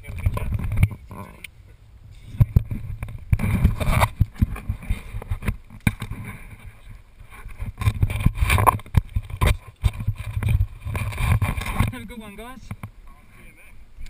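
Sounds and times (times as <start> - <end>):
wind buffeting microphone: 0.0 - 13.0
camera knocks and rustles: 0.1 - 1.3, 2.3 - 6.7, 7.4 - 12.0.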